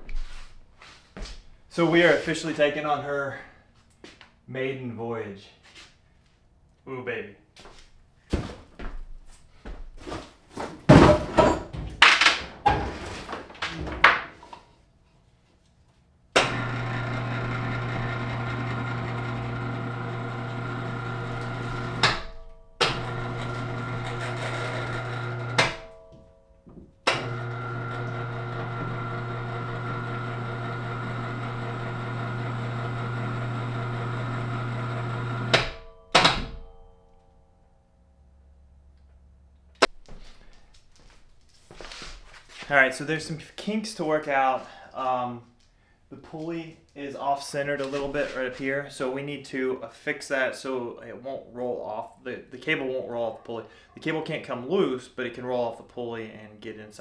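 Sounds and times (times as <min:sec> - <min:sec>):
electric hoist humming: 0:16.4 - 0:26.2, 0:27.0 - 0:36.8.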